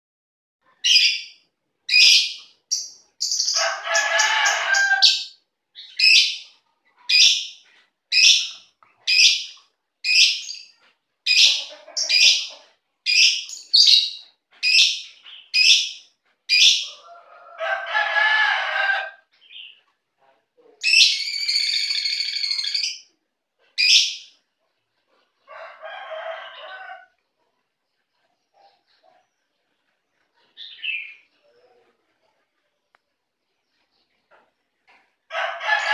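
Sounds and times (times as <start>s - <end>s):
lovebirds chirping: 0.7s - 17.2s, 19.3s - 20.0s, 20.8s - 24.4s, 26.6s - 35.1s
lovebird chatter: 1.9s - 16.9s, 20.8s - 23.1s.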